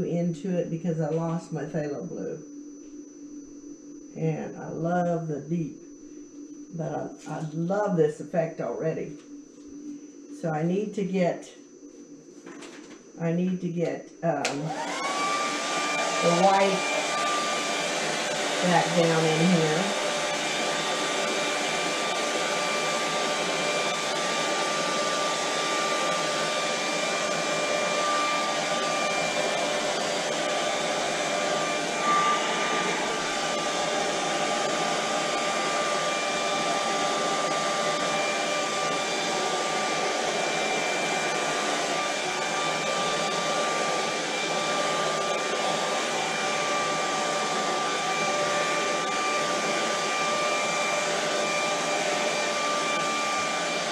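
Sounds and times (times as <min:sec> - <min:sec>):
hair dryer running: 0:13.8 - 0:53.9.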